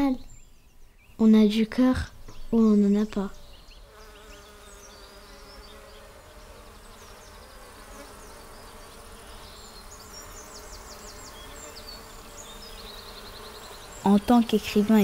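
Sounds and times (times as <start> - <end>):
bees buzzing: 3.3 - 15.0.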